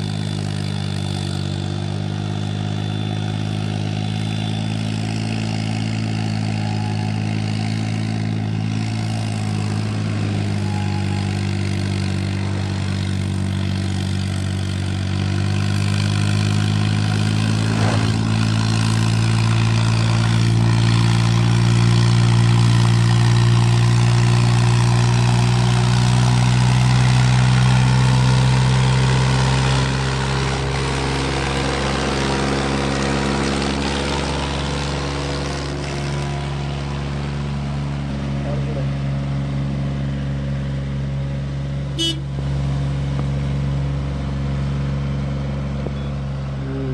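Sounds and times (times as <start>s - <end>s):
tractor diesel engine running: 0.0s - 46.9s.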